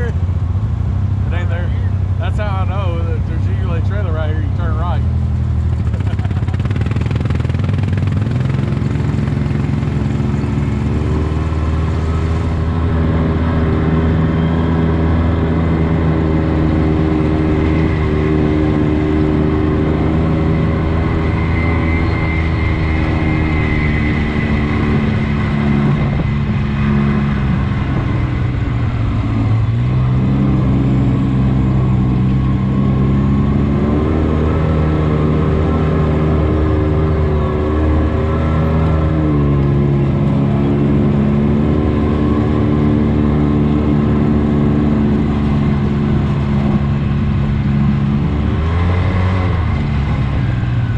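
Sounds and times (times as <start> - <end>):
off-road vehicle engine running: 0.0 - 50.9.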